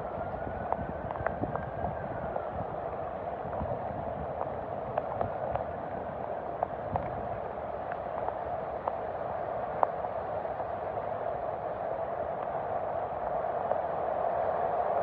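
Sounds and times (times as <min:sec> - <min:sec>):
heavy rain on standing water: 0:00.0 - 0:15.0.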